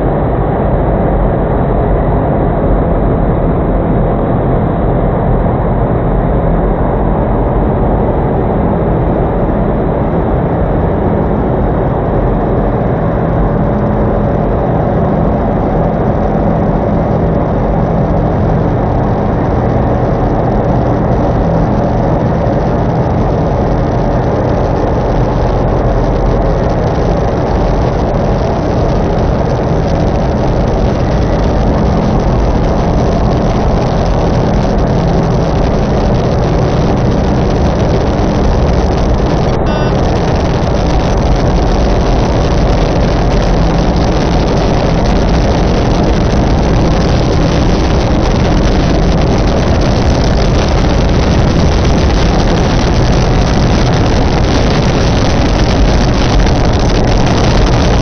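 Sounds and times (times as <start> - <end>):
loud rumbling noise: 0.0 - 58.0
steady low hums: 0.0 - 58.0.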